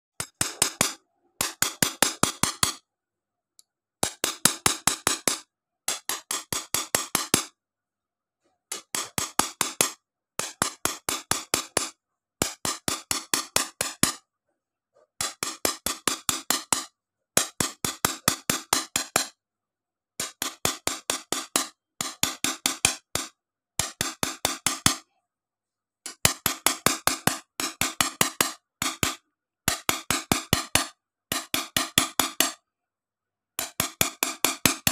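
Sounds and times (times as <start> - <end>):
hammer tapping metal point on glass: 4.0 - 7.5, 15.2 - 19.4, 20.2 - 25.0, 26.1 - 32.6.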